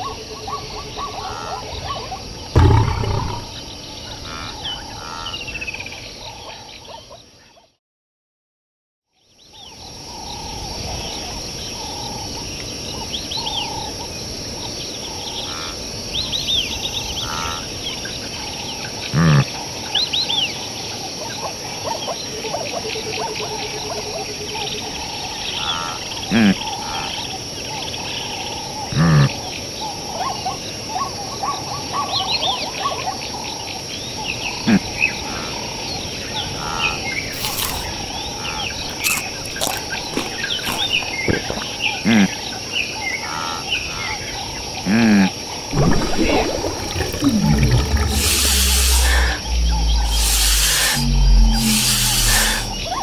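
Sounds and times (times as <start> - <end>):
short low animal sounds: 2.6 - 3.6, 45.8 - 53.0
high insect drone: 33.4 - 53.0.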